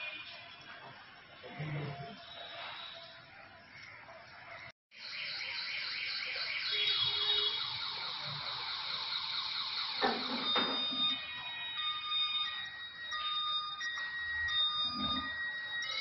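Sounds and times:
electronic alarm-like warble: 0:04.9 - 0:16.0
knock: 0:10.0 - 0:11.0
high ringing tones: 0:10.0 - 0:16.0.

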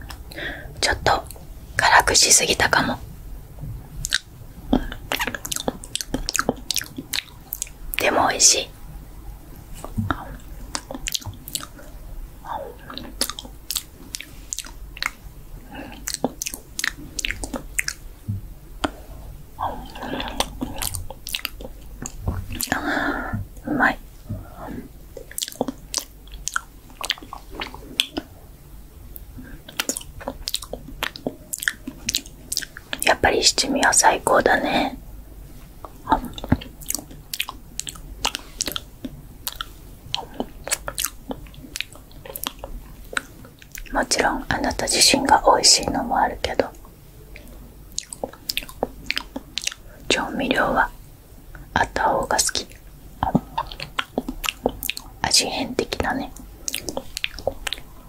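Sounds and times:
lip smacks: 0:04.0 - 0:08.4, 0:09.6 - 0:12.0, 0:12.6 - 0:19.1, 0:19.7 - 0:28.3, 0:29.1 - 0:34.7, 0:35.7 - 0:50.6, 0:51.5 - 0:58.0
tongue clicks: 0:04.0 - 0:08.4, 0:09.8 - 0:11.9, 0:12.8 - 0:18.0, 0:18.8 - 0:19.0, 0:25.2 - 0:28.3, 0:29.2 - 0:34.4, 0:35.8 - 0:50.7, 0:51.5 - 0:58.0
mock chewing: 0:04.0 - 0:08.7, 0:09.6 - 0:28.4, 0:29.1 - 0:34.9, 0:35.5 - 0:50.8, 0:51.6 - 0:58.0.

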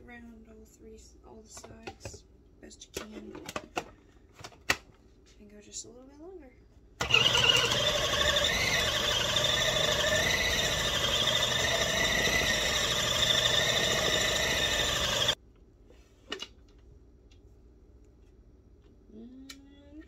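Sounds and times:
food processor motor whirring: 0:07.0 - 0:15.4.

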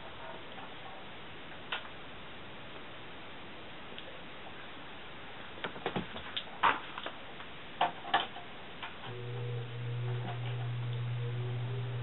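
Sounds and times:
fan air noise: 0:00.0 - 0:12.0
fan motor humming: 0:09.0 - 0:12.0.

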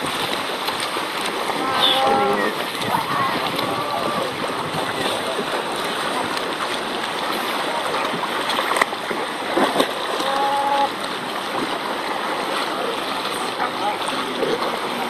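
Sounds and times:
sea water sloshing around kayak: 0:00.0 - 0:15.0.

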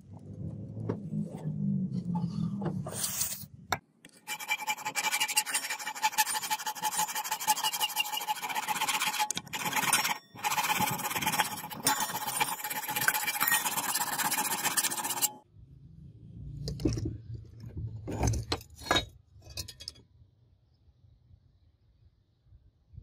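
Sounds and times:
file rasping on steel: 0:04.2 - 0:15.4.

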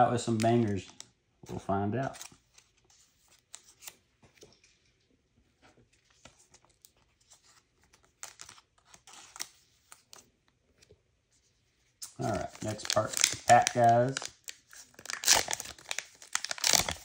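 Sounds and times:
trading cards tapping and rustling: 0:12.0 - 0:17.0.

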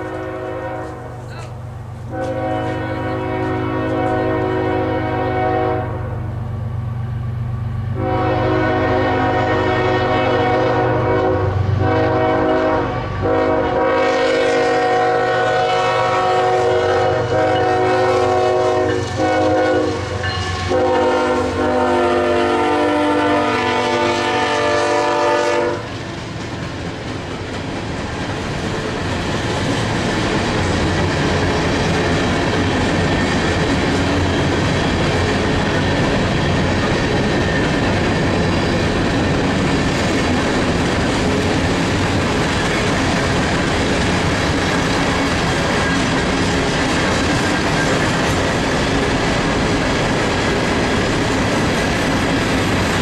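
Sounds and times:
locomotive air horn blasts: 0:00.0 - 0:01.2, 0:02.1 - 0:06.1, 0:08.0 - 0:25.9.

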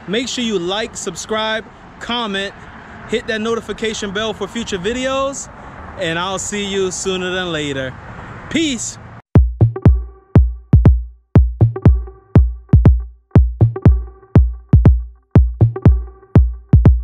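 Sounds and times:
heavy kick drum: 0:09.4 - 0:17.0
sustained chord: 0:11.8 - 0:17.0.

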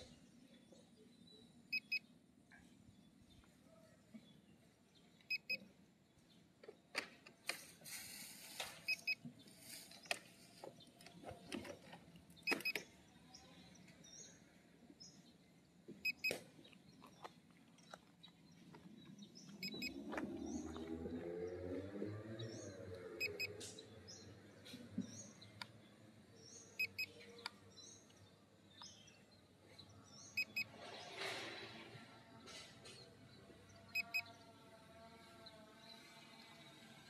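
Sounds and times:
short double electronic beeps: 0:16.0 - 0:16.4, 0:30.4 - 0:30.7.

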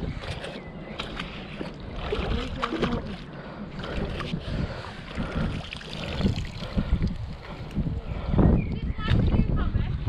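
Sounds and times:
water sloshing and splashing: 0:00.0 - 0:07.8.

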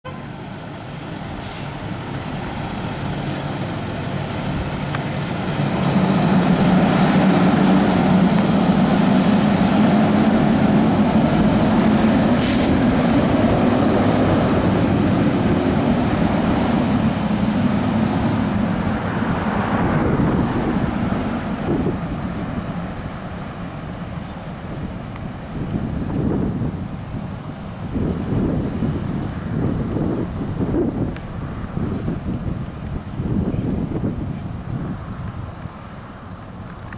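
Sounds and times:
diesel engine running: 0:00.1 - 0:26.8.

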